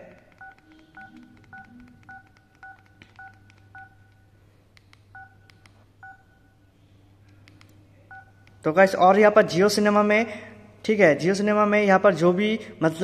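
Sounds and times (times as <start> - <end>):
phone key beeps: 0.3 - 4.2, 5.1 - 6.4
soft key clicks: 7.2 - 7.8.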